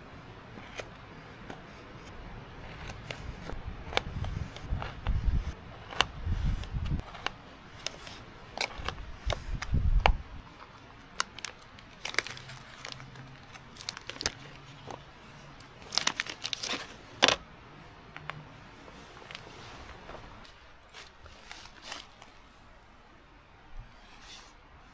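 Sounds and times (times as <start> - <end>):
plastic wrapper crinkling and tearing: 10.6 - 17.4, 20.8 - 22.4.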